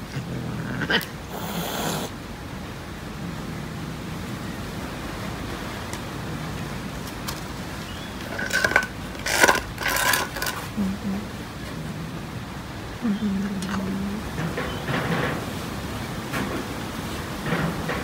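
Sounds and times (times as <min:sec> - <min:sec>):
metal plates clattering on concrete: 0:08.2 - 0:10.6.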